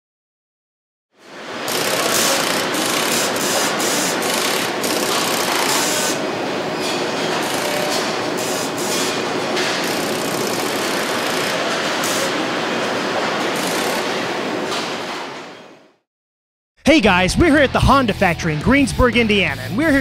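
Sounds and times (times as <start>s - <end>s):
machinery clatter and hiss: 1.3s - 15.6s.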